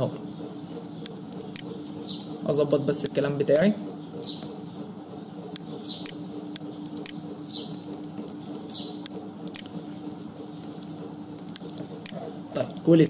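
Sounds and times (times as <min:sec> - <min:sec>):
bird chirping: 0:00.0 - 0:12.4
steady low hum: 0:00.0 - 0:13.0
computer keyboard and mouse clicks: 0:00.7 - 0:02.1, 0:05.5 - 0:12.9.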